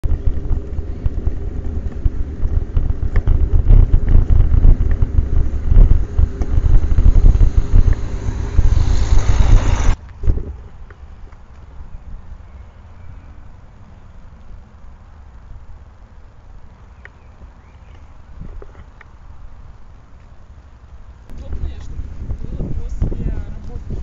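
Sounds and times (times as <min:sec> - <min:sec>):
wind buffeting microphone: 0:00.0 - 0:10.7, 0:21.3 - 0:24.0.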